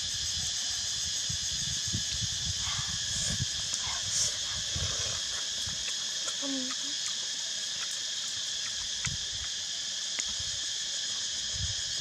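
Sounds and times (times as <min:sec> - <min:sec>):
wind rumble on microphone: 0:00.0 - 0:05.9, 0:11.4 - 0:12.0
insects chirping: 0:00.0 - 0:12.0.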